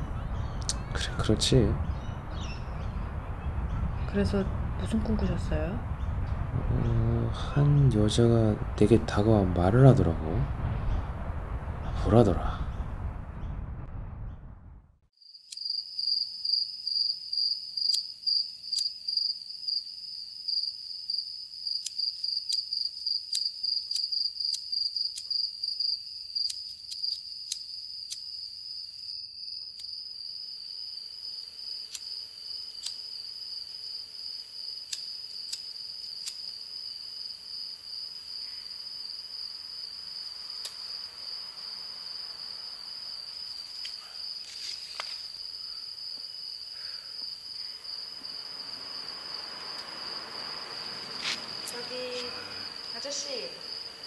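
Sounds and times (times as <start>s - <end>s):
crickets trilling: 15.2s - 54.0s
sharp clicks: 32.8s - 33.0s, 34.9s - 36.5s.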